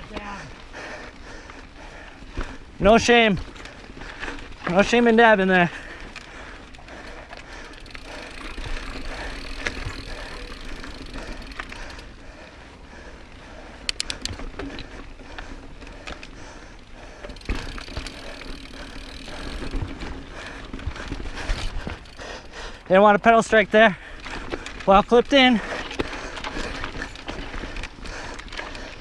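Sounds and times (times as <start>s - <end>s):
bike tyres rolling on rock: 0.0s - 29.0s
sharp clicks: 13.8s - 14.4s
bike knocks and rattles: 17.2s - 22.2s.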